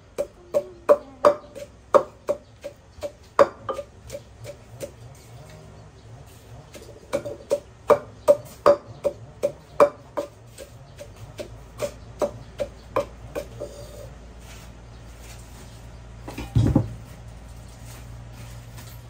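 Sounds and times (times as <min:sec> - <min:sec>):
pestle pounding in a mortar: 0:00.0 - 0:05.2, 0:06.7 - 0:13.8.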